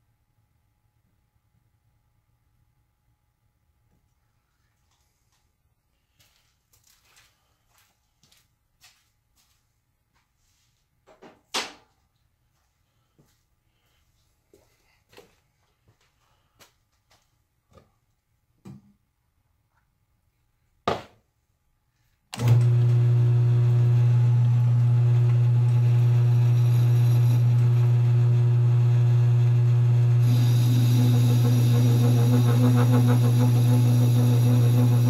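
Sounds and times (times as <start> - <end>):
lathe motor humming: 22.4 - 35.0.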